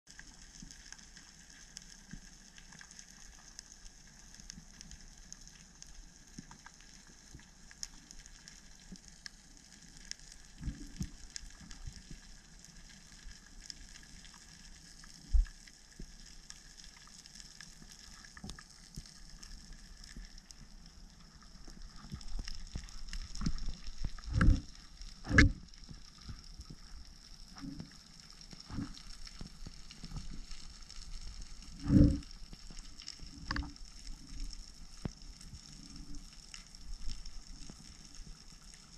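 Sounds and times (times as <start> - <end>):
fine underwater crackling: 0.1 - 38.9
dull low knocks and thumps: 23.4 - 25.7.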